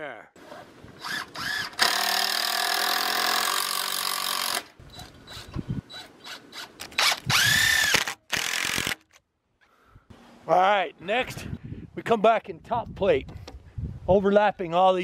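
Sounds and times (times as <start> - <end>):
cordless drill drilling into wood: 1.0 - 5.5, 6.2 - 9.1.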